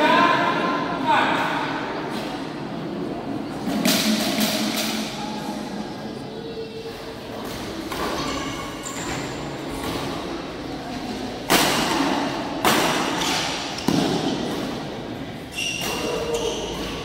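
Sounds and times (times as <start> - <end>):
racket hitting shuttlecock: 11.4 - 15.0.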